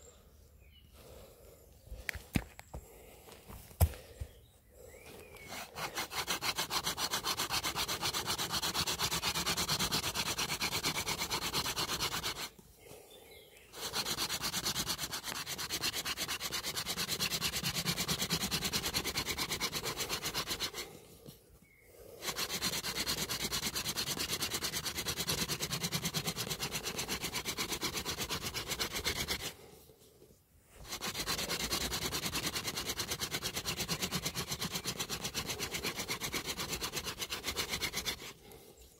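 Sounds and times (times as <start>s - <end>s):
hand drill rasping wood on wood: 5.3s - 12.6s, 13.7s - 21.4s, 22.0s - 29.7s, 30.8s - 38.5s.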